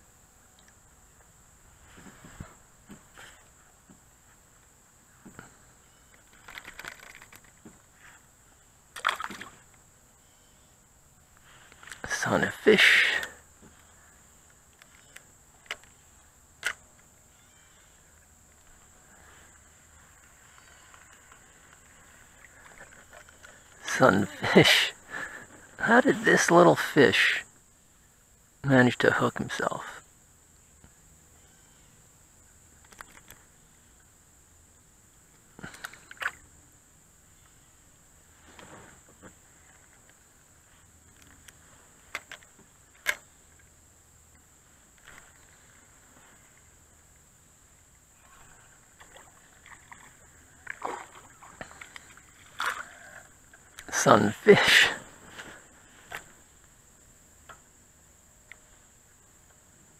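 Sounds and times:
insects droning: 0.0s - 59.9s
sharp clicks: 6.1s - 7.6s.

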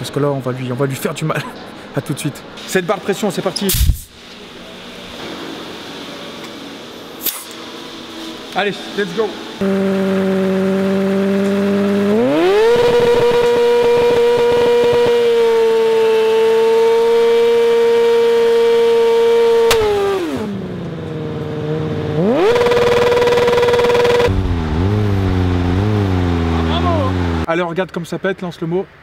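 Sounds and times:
motorcycle engine revving: 9.5s - 27.5s.

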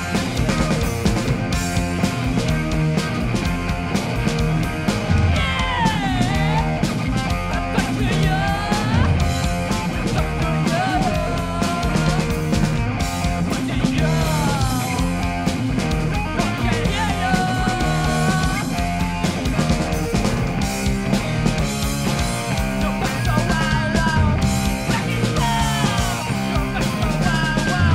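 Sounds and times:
bass guitar: 0.0s - 27.9s
drum kit: 0.0s - 27.9s
electric guitar: 0.0s - 27.9s
person singing: 5.3s - 12.6s, 13.4s - 15.2s, 16.4s - 18.8s, 22.5s - 27.9s.

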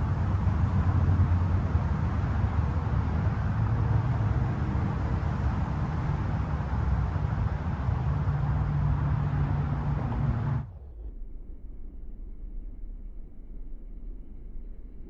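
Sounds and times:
car engine humming: 0.0s - 10.7s.

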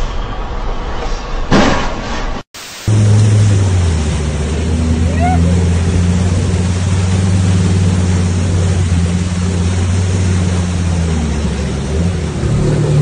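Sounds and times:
water rushing against vehicle: 2.6s - 13.0s
vehicle engine under load: 2.9s - 13.0s.

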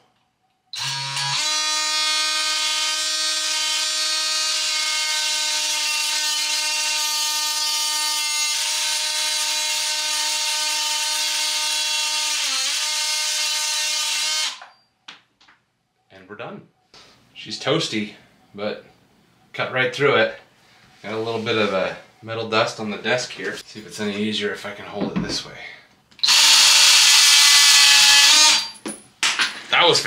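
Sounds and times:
oscillating multi-tool cutting metal: 0.8s - 14.8s, 26.2s - 28.8s.

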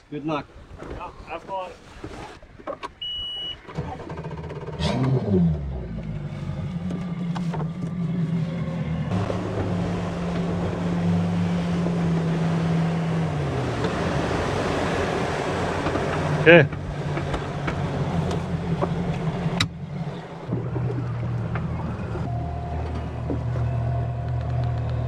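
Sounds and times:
wind and water rushing: 0.0s - 4.2s, 8.9s - 22.4s
outboard motor running: 2.5s - 25.0s
short electronic beep: 3.0s - 3.7s.

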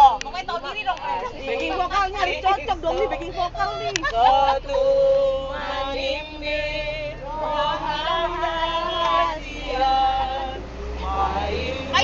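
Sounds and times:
bus rumble: 0.0s - 12.0s
women singing together: 0.0s - 12.0s.

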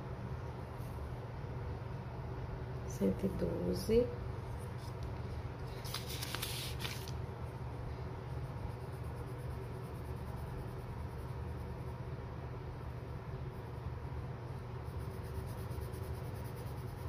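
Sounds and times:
steady low hum: 0.0s - 17.0s
scratchy rustle: 5.7s - 7.2s
pencil scratching on paper: 8.3s - 12.0s, 14.8s - 17.0s.

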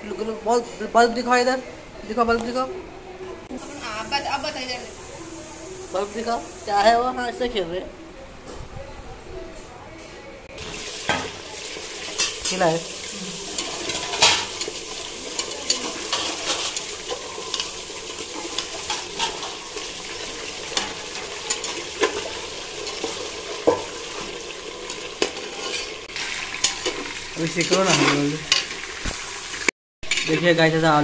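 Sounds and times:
potatoes deep-frying in oil: 10.5s - 31.0s.

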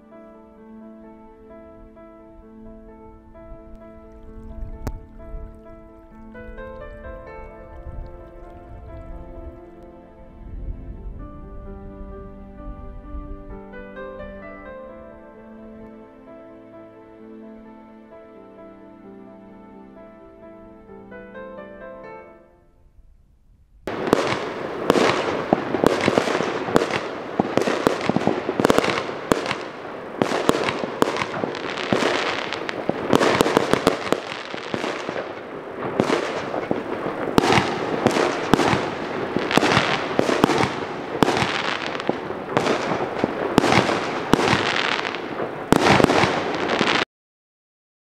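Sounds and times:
fireworks bangs and crackles: 23.8s - 47.0s.

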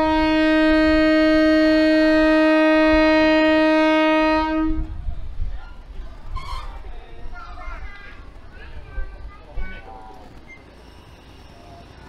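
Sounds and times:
locomotive horn long note: 0.0s - 5.0s.

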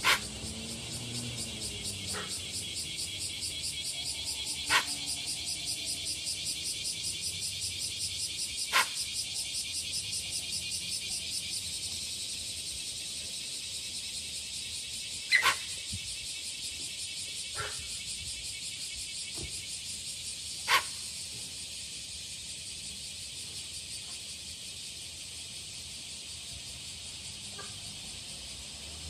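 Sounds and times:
animal warning calls: 0.0s - 6.6s, 8.6s - 9.2s, 15.2s - 15.8s, 20.6s - 21.1s.

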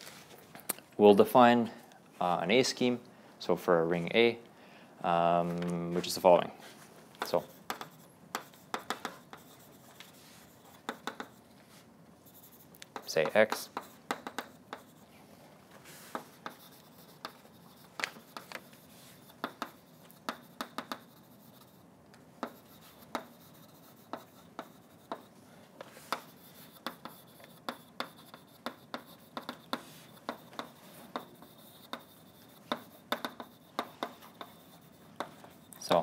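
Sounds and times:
chalk tapping and scratching: 7.2s - 15.1s, 15.8s - 36.0s.

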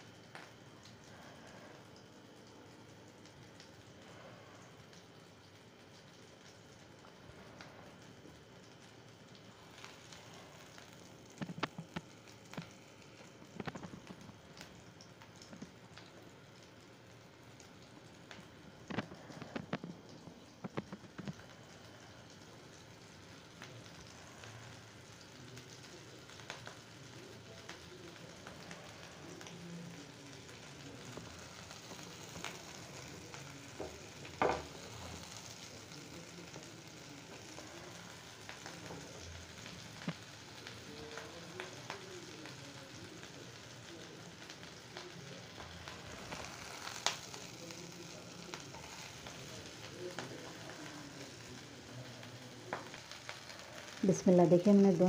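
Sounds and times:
food sizzling in oil: 0.0s - 55.0s.

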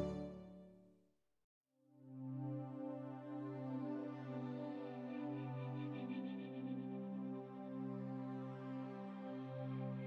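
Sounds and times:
ambient synthesizer music: 0.0s - 0.5s.

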